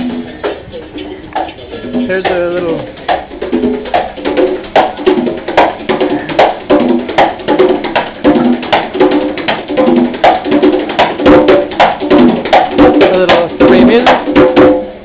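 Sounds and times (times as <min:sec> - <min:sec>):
conga drum played by hand: 0:00.0 - 0:15.0.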